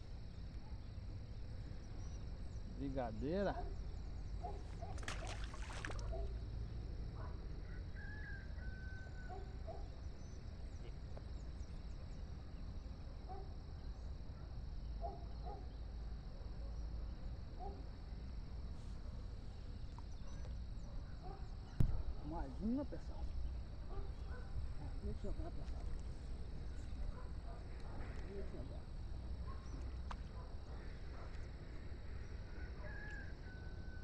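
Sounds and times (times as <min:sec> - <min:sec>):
insect drone: 0:00.0 - 0:34.0
wind rumble on microphone: 0:23.8 - 0:30.5.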